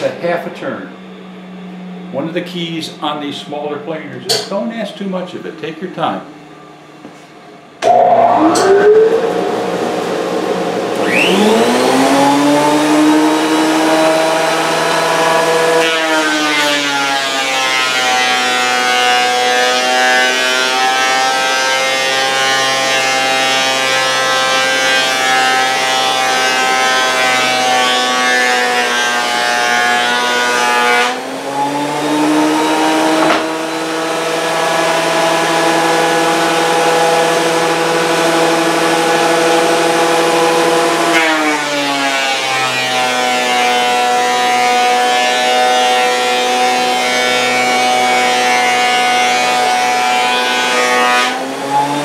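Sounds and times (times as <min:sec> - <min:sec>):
planer cutting board: 0:07.8 - 0:52.0
thickness planer motor whining: 0:07.8 - 0:52.0
single knock: 0:33.2 - 0:33.5.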